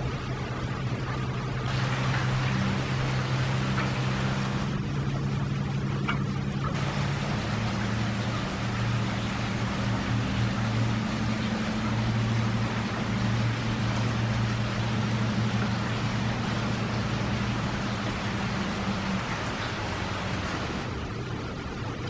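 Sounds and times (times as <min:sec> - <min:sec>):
low mechanical hum: 0:00.0 - 0:22.0
rain falling into water: 0:00.0 - 0:22.0.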